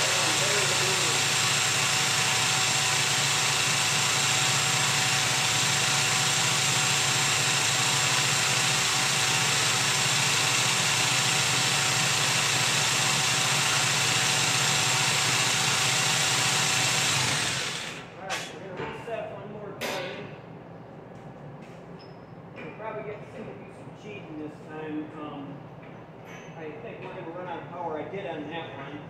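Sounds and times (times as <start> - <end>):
machinery hum and hiss: 18.2 - 29.0.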